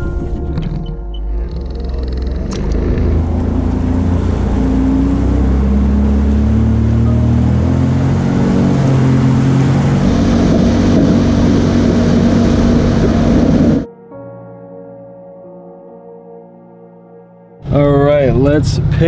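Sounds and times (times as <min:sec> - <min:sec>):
jet ski engine: 0:00.0 - 0:13.9, 0:17.7 - 0:19.0
background music with bass: 0:00.0 - 0:16.5, 0:17.6 - 0:19.0
water spray rushing: 0:08.9 - 0:13.9.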